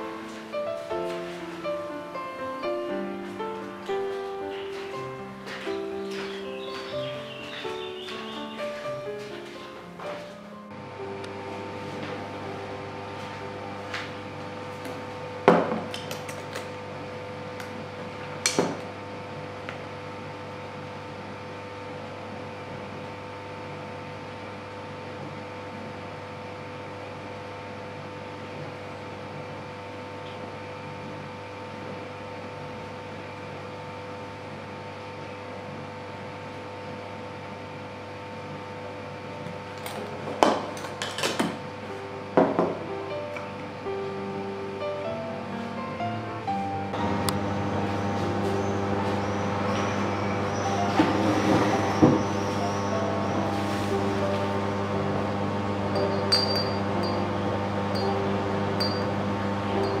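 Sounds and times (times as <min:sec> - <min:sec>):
dishwasher humming: 0:00.0 - 0:19.1, 0:38.8 - 1:00.0
glass and metal clinks: 0:56.0 - 0:57.3, 0:58.8 - 0:59.1.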